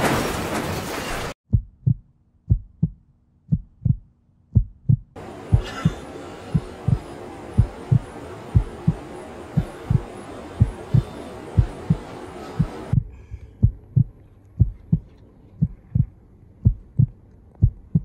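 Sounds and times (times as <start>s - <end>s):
heartbeat thumps: 1.5s - 18.0s
background hiss: 5.2s - 14.1s.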